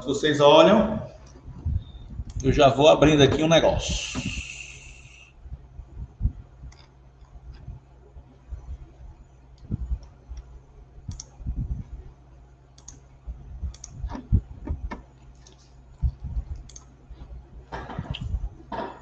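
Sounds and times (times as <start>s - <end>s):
steady low hum: 0.0s - 19.0s
soft low thumps: 1.0s - 4.4s, 5.4s - 6.8s, 7.4s - 12.2s, 13.2s - 15.1s, 16.0s - 18.9s
mouse and keyboard clicks: 11.1s - 11.3s.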